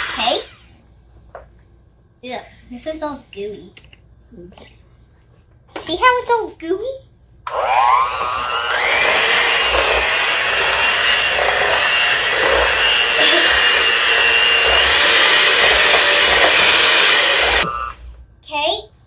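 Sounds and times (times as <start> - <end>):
electric hand mixer whipping: 7.5 - 18.0.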